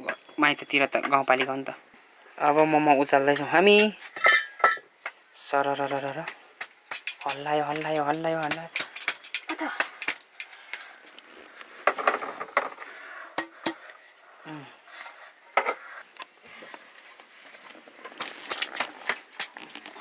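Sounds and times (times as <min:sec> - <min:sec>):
metal steamer trays clinking: 0:03.3 - 0:04.8.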